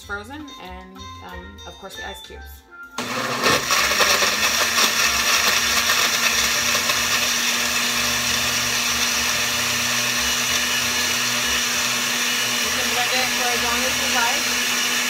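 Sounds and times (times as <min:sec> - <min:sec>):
blender whirring: 0:03.0 - 0:15.0
ice crunching in blender: 0:03.0 - 0:15.0.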